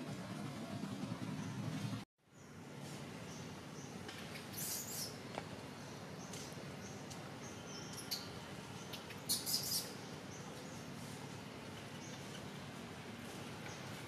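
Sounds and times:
forest background hiss: 0.0 - 14.0.

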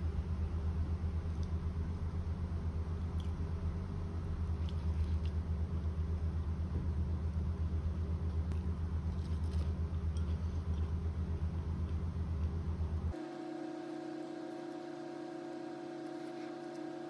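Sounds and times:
electric fan motor humming: 0.0 - 17.0.

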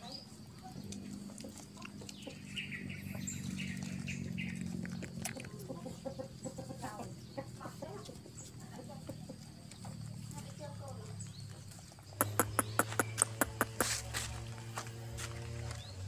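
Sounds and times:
puppies suckling: 0.0 - 9.8
chicken clucking: 0.3 - 10.4, 11.7 - 14.4.

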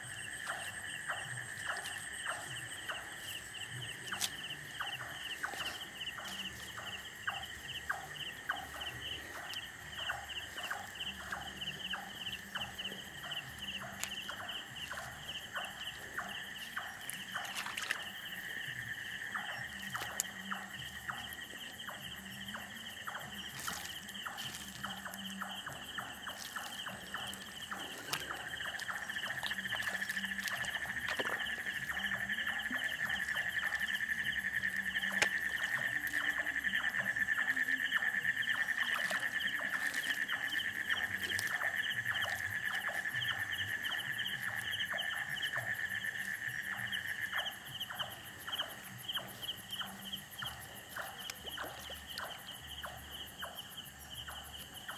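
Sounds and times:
fast pulsing insect chirp: 0.0 - 54.9
insects trilling: 0.0 - 54.9.

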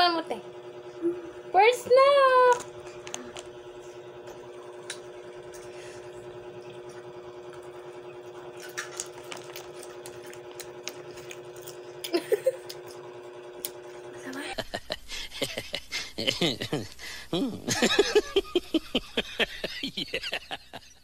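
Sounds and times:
snack rustling and chewing: 8.6 - 13.0.

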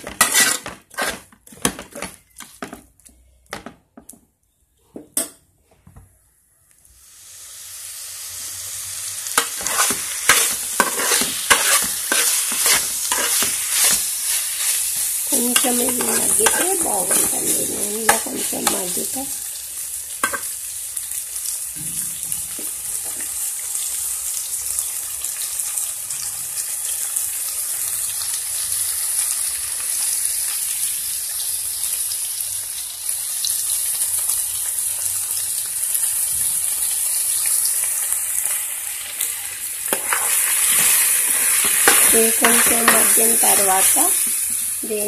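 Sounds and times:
fish sizzling in hot oil: 6.9 - 45.0.

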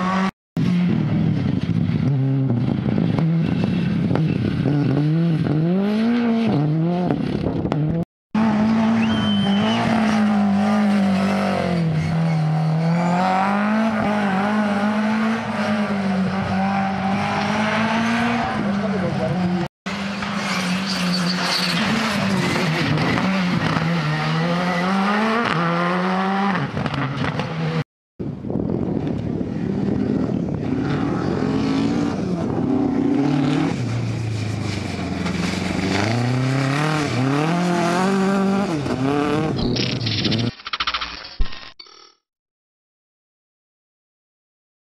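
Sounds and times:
rally car engines revving: 0.0 - 27.8, 29.6 - 40.0.

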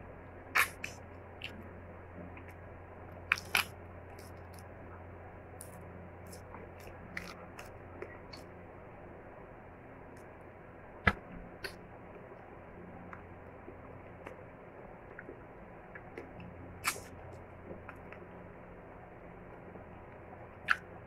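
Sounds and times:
crab shell cracking: 3.3 - 4.6
chewing: 5.6 - 8.5.

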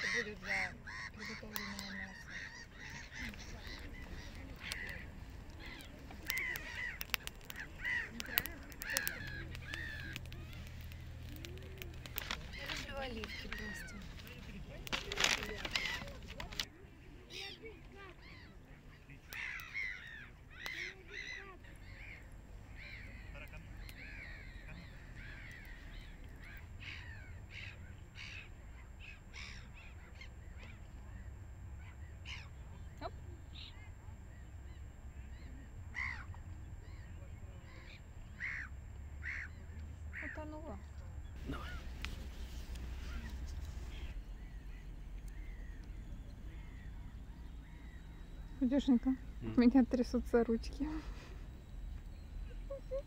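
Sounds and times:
steady low rumble: 0.0 - 16.9, 19.3 - 53.0
birds harsh cries: 0.0 - 53.0
gulls calling: 0.0 - 53.0
twig fire crackling and popping: 1.2 - 16.7, 19.2 - 28.6, 38.9 - 52.4.

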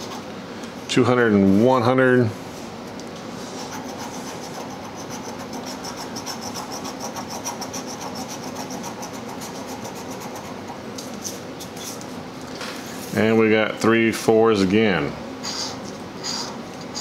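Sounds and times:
coin scratching lottery ticket: 3.5 - 12.0.

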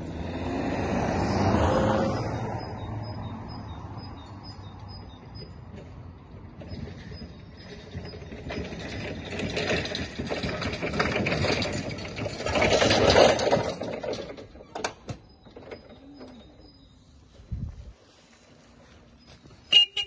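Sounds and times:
wheels rumbling on brick pavers: 0.0 - 20.0.

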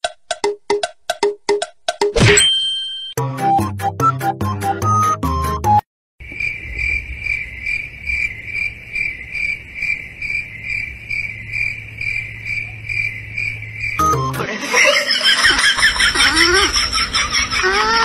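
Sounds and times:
cricket chirping: 6.2 - 17.6
steady low hum: 6.5 - 18.0.

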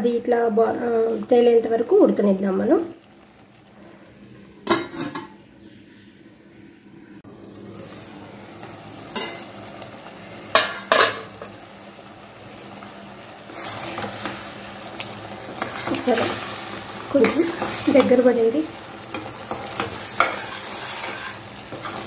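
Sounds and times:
pulp bubbling and sizzling in oil: 0.6 - 5.1, 7.3 - 22.0
metal ladle clanking on pan: 4.6 - 5.4, 9.1 - 9.5, 10.5 - 11.6, 19.2 - 22.0
stirring in pan: 7.7 - 22.0
steel lid clinking: 10.5 - 11.3.

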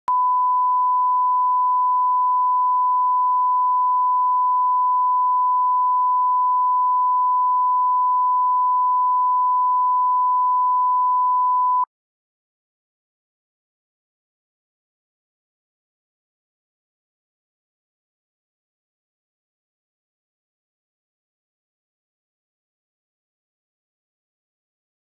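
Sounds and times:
sine wave reference tone: 0.1 - 11.9.

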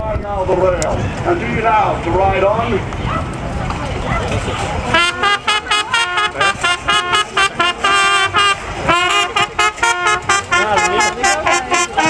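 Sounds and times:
fast lead melody: 4.9 - 12.0.

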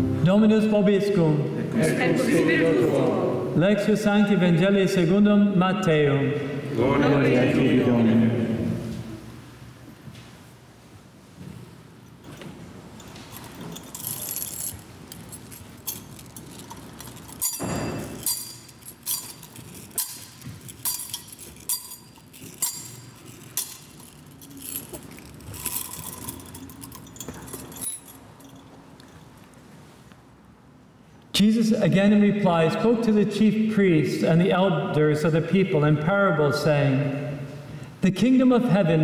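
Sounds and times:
metal chains clinking: 12.2 - 29.5.

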